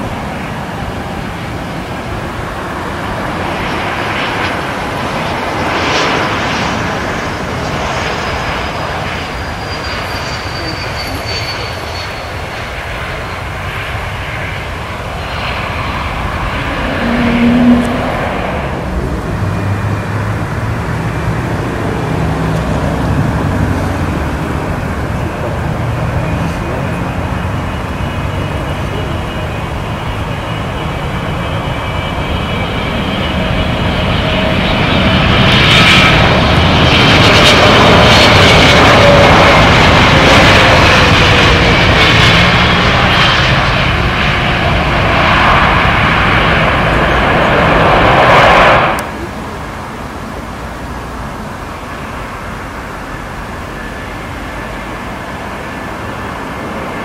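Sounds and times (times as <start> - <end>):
jet airliner engine noise: 0.0 - 57.0
low hum: 14.5 - 28.1.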